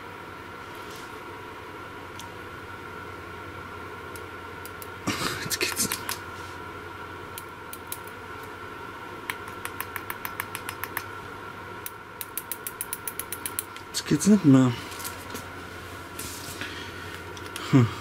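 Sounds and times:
electrical hum with high whine: 0:00.0 - 0:18.0
quick even ticking: 0:09.3 - 0:11.1.

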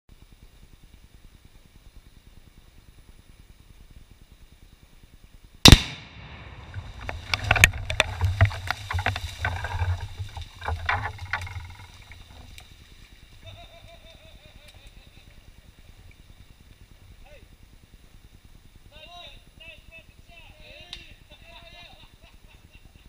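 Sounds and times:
explosive blast: 0:05.7 - 0:08.0
low rumble: 0:05.7 - 0:13.0
scattered crackles: 0:05.7 - 0:13.9.

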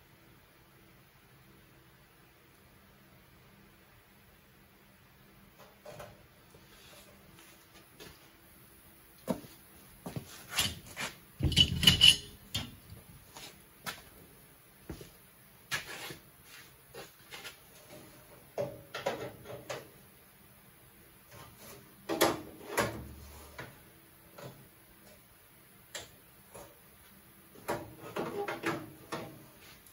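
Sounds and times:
metal pliers clicking and clanking: 0:11.4 - 0:12.8.

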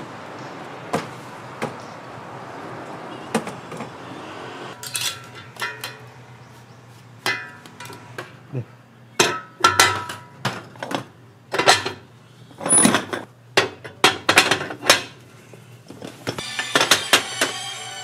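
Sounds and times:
metal kitchenware clanking: 0:09.2 - 0:10.4.

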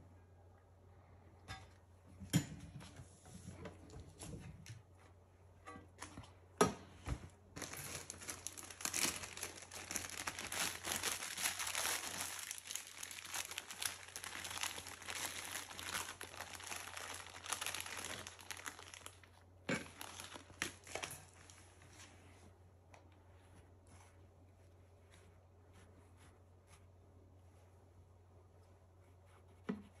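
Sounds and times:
plastic bag crinkling: 0:07.5 - 0:21.8.

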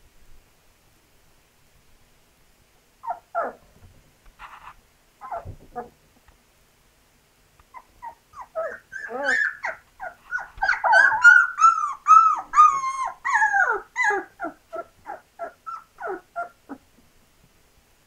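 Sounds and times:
puppy whining and yelping: 0:03.0 - 0:03.7, 0:05.2 - 0:06.0, 0:07.7 - 0:17.0.

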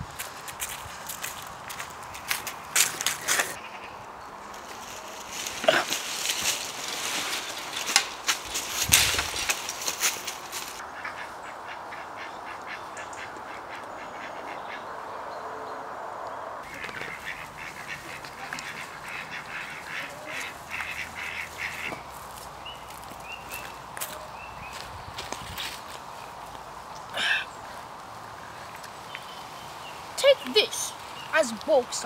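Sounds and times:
footsteps crunching on leaves and gravel: 0:00.0 - 0:03.6, 0:04.4 - 0:10.8, 0:16.7 - 0:27.0
birds quacking: 0:10.8 - 0:15.3, 0:16.6 - 0:24.9.

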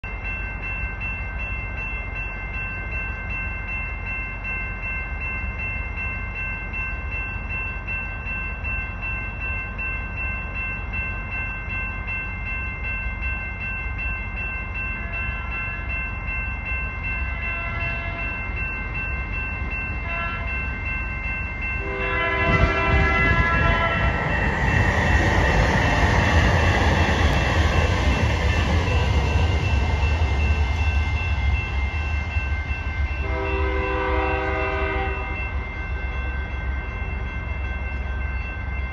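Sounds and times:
distant freight train rumble: 0:00.1 - 0:38.9
steady high-pitched tones: 0:00.1 - 0:38.9
train horn: 0:17.4 - 0:18.4, 0:20.0 - 0:20.6, 0:21.8 - 0:24.2, 0:33.2 - 0:35.5.

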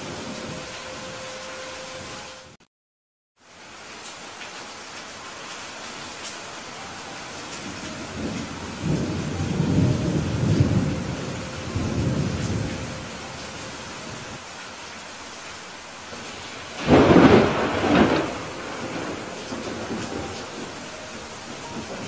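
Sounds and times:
steady rain falling: 0:00.0 - 0:02.6, 0:03.4 - 0:22.0
low thunder rumble: 0:07.6 - 0:14.4, 0:16.2 - 0:22.0
sharp loud thunderclap: 0:16.3 - 0:20.7.

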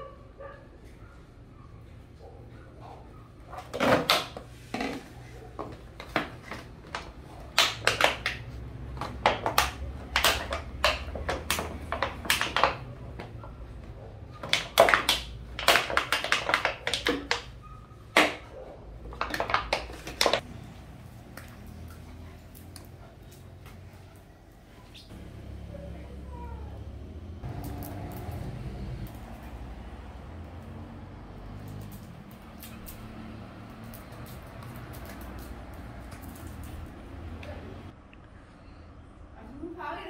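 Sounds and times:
dog chewing plastic bottle: 0:06.0 - 0:12.9, 0:14.4 - 0:17.5, 0:19.1 - 0:20.4.

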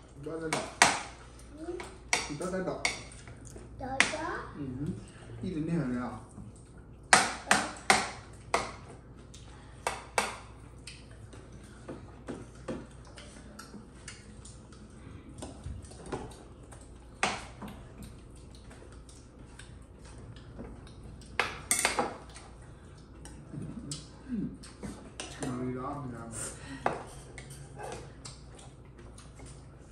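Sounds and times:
utensils clinking against dishes: 0:21.4 - 0:22.2, 0:26.4 - 0:28.6.

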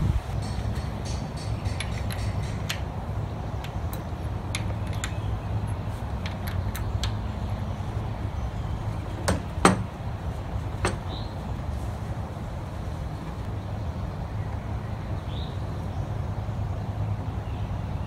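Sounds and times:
wrench clicking on bolt: 0:00.4 - 0:02.9, 0:03.6 - 0:07.6.

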